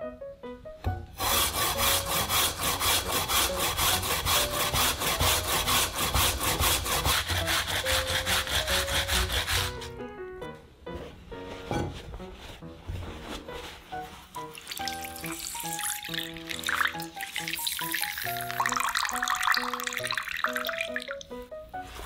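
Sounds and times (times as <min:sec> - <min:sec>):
potato grating rasps: 0:01.2 - 0:09.9, 0:14.3 - 0:19.6.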